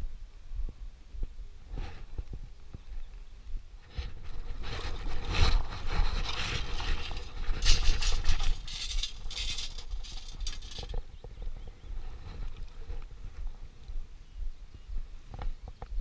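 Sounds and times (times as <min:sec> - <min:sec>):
stones rattling against metal: 0:04.3 - 0:11.1.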